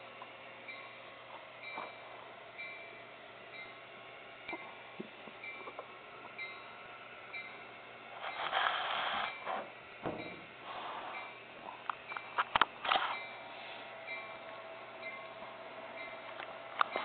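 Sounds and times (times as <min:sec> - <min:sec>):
bell ringing: 0:14.0 - 0:16.3.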